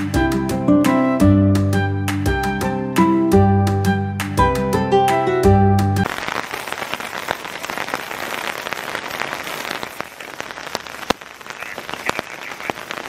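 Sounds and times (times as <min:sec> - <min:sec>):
raindrops tapping sharply: 0:06.0 - 0:13.0
steady rain falling: 0:06.0 - 0:13.0.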